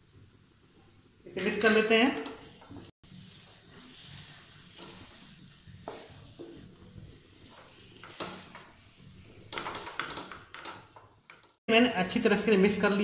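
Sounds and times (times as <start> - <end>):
fat sizzling in a pan: 0.0 - 1.3, 2.2 - 13.0
wooden spatula scraping a pan: 2.2 - 11.6.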